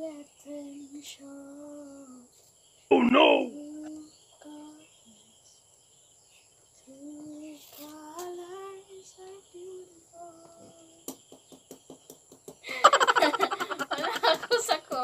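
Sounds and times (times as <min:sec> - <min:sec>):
woman singing softly: 0:00.0 - 0:02.4, 0:03.4 - 0:05.6, 0:06.8 - 0:11.1.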